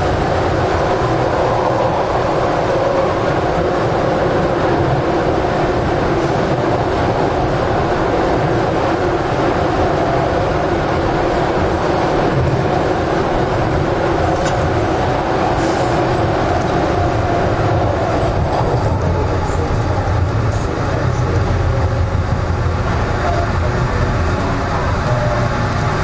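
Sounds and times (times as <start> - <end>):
subway train rumbling: 0.0 - 26.0
light track ticks: 14.2 - 14.8, 16.2 - 16.8, 23.2 - 26.0.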